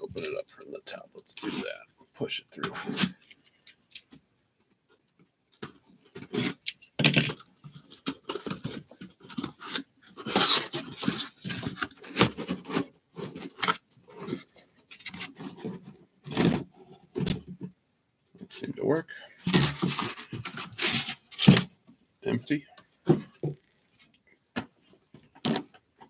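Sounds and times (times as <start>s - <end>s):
cardboard scraping and knocking: 19.5s - 21.7s.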